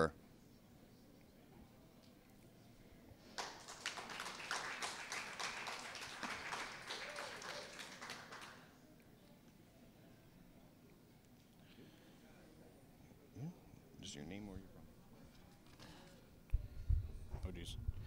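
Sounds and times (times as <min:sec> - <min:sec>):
crowd clapping: 0:03.3 - 0:08.8.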